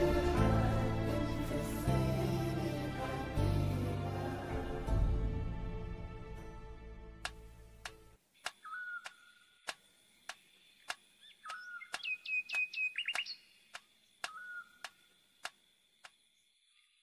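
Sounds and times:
bird chirping: 8.4s - 17.0s.

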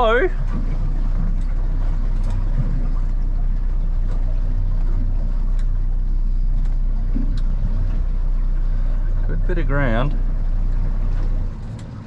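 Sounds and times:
outboard engine droning: 0.0s - 12.0s.

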